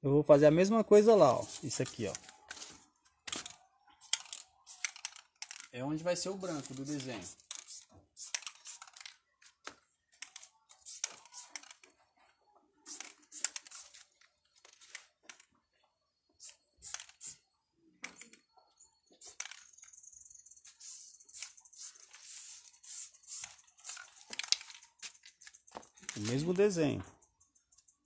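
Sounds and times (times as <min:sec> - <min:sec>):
spray paint can hissing: 0:04.0 - 0:05.2, 0:06.5 - 0:09.0, 0:10.8 - 0:11.8, 0:12.8 - 0:14.1, 0:16.4 - 0:17.4, 0:19.2 - 0:19.6, 0:20.7 - 0:24.6.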